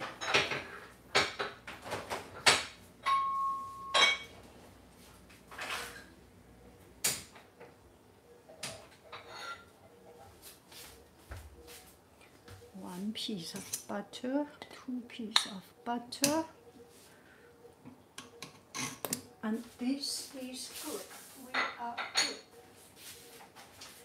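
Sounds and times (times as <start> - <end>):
utensils and dishes clinking: 0.0 - 1.6, 2.4 - 4.4, 8.6 - 9.7, 21.5 - 22.5.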